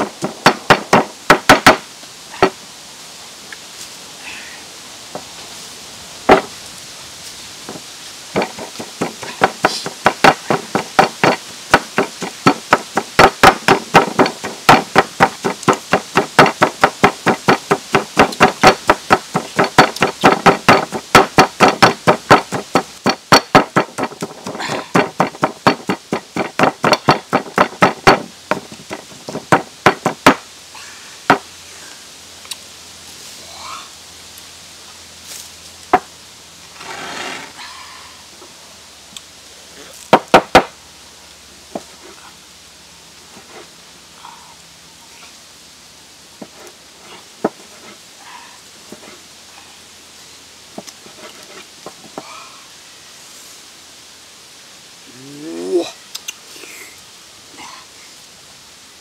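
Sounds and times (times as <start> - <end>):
bamboo pestle knocking in bowl: 8.4 - 30.4.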